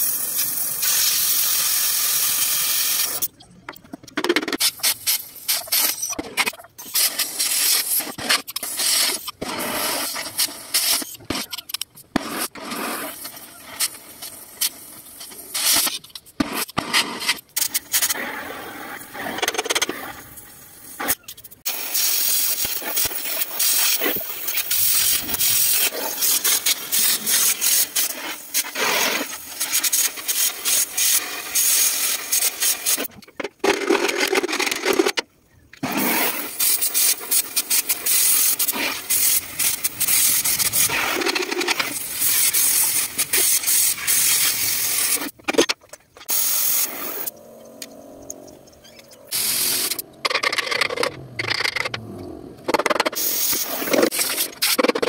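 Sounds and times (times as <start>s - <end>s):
cutting torch hissing and crackling: 0.0s - 3.3s, 6.8s - 11.4s, 12.2s - 33.1s, 35.8s - 45.4s, 46.2s - 50.1s, 53.2s - 54.8s.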